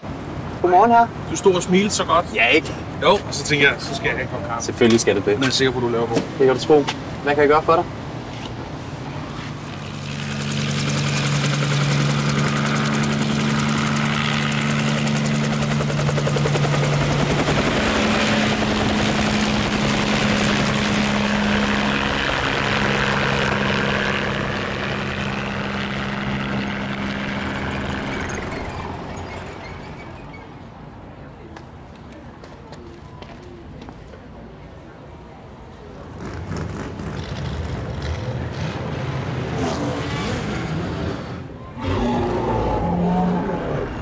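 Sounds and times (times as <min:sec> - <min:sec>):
helicopter rotor chop: 0:09.4 - 0:30.5.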